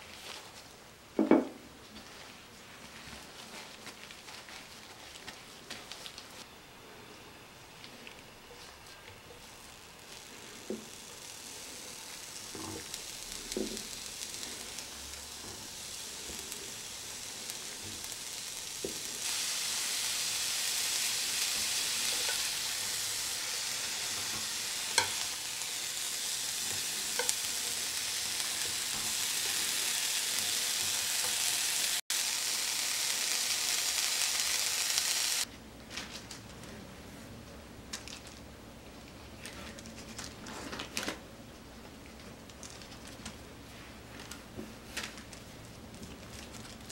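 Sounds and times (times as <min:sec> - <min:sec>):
roots sizzling in frying pan: 0:08.1 - 0:35.5.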